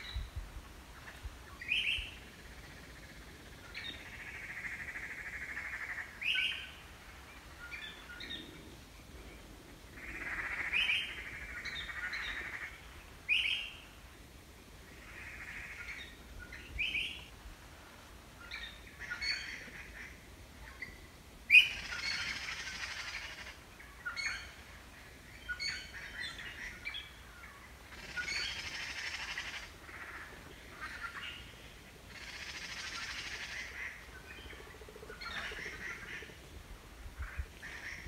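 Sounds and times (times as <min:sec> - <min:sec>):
harsh bird chattering calls: 0:27.9 - 0:31.4.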